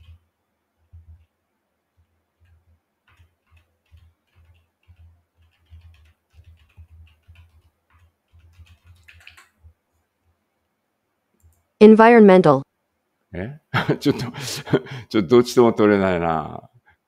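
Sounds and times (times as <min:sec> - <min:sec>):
keyboard keys clicking: 0:02.4 - 0:09.7.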